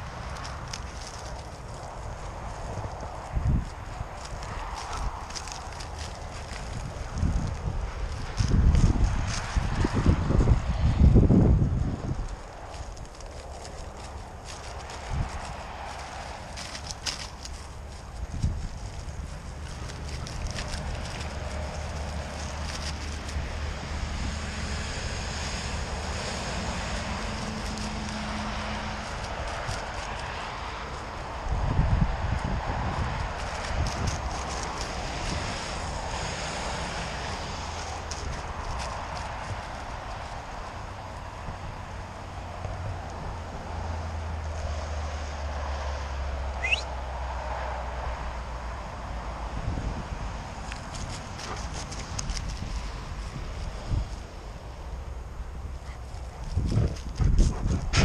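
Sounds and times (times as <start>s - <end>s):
dry grass rustling: 0.0s - 58.0s
vehicle engine hum passing: 0.0s - 58.0s
wind rumble on microphone: 0.0s - 58.0s
short rising whistle: 46.6s - 46.9s.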